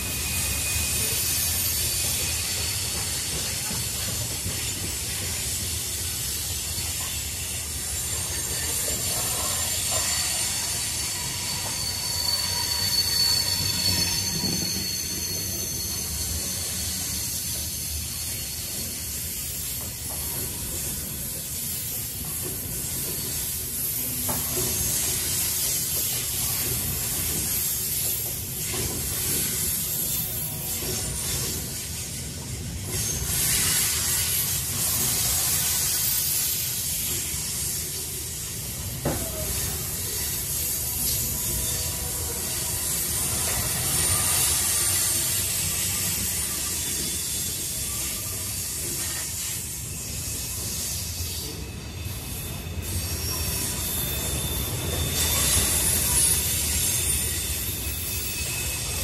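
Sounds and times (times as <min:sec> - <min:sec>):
railroad cars rumbling: 0:00.0 - 0:59.0
steel wheels squealing on rails: 0:00.0 - 0:59.0.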